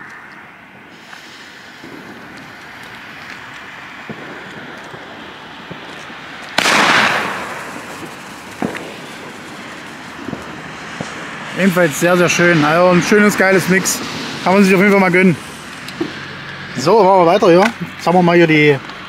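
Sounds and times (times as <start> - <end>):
firework hiss: 0.6 - 17.1
firework bang: 0.8 - 16.4.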